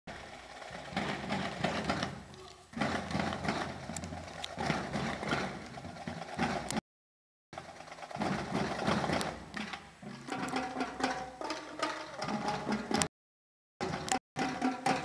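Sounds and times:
people talking: 2.3 - 2.7.

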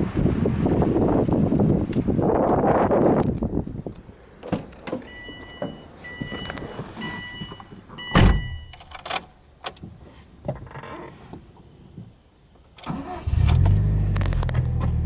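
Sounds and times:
car warning chime: 5.1 - 8.8
car door thunk: 7.4 - 8.7.

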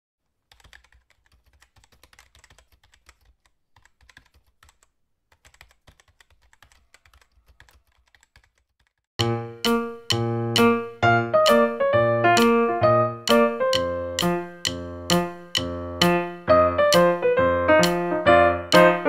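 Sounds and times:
loud piano-like music: 9.2 - 19.0.

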